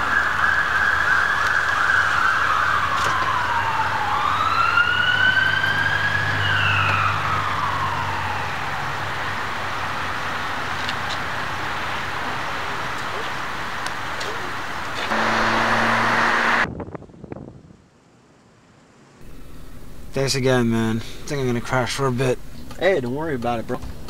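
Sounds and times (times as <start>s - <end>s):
siren wailing: 0.0s - 9.4s, 15.1s - 16.7s
car engine humming: 14.3s - 16.7s.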